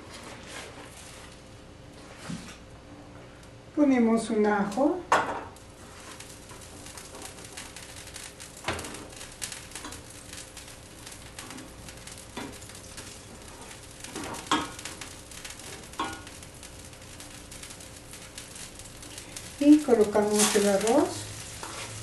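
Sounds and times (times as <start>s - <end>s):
garlic sizzling in butter: 5.6s - 22.0s.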